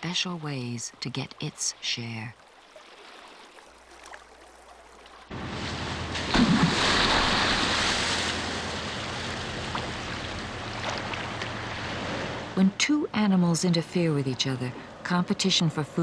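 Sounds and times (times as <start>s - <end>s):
churning splashing seawater: 2.6s - 12.6s
heavy splash: 5.2s - 12.6s.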